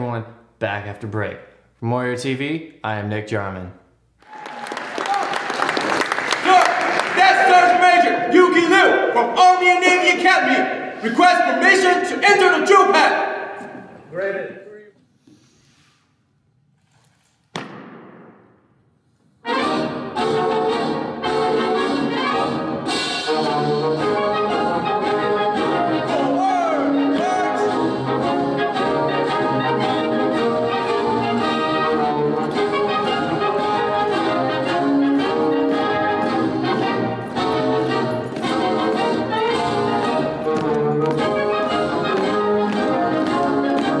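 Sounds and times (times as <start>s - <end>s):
brass band music: 6.4s - 14.4s, 19.4s - 44.0s.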